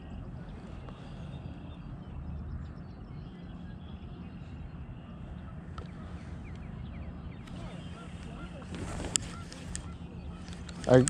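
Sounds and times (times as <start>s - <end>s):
faint bird chirps: 0.0s - 11.0s
low outdoor rumble: 0.0s - 11.0s.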